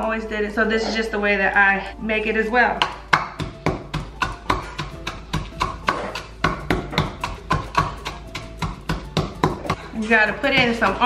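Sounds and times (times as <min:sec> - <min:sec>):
wooden pestle pounding: 0:02.8 - 0:11.0.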